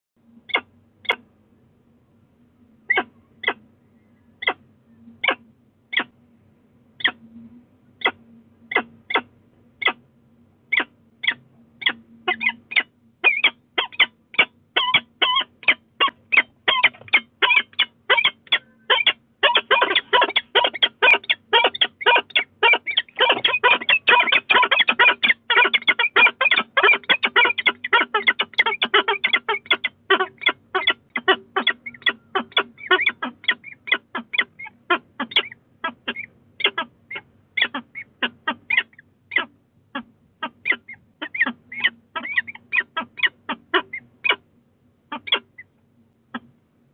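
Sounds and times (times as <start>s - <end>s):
falcons calling: 10.7s - 39.4s.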